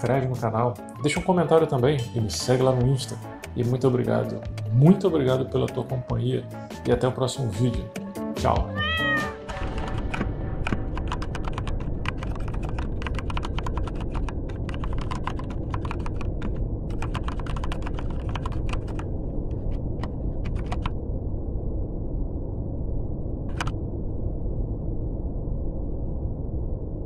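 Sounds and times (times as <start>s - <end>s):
keyboard typing: 9.0s - 19.1s, 20.0s - 20.9s
steady low rumble: 9.5s - 27.0s.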